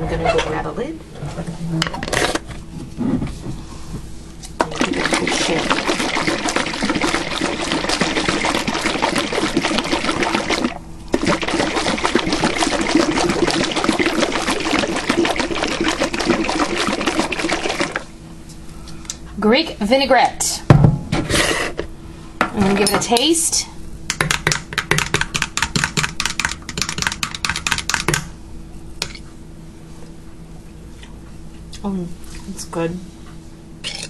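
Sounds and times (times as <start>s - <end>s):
liquid sloshing in shaken jar: 4.6s - 18.1s.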